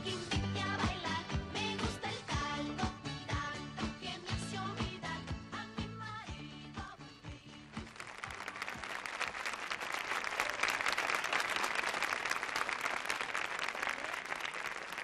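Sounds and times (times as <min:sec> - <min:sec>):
audience applauding: 0:07.8 - 0:15.0.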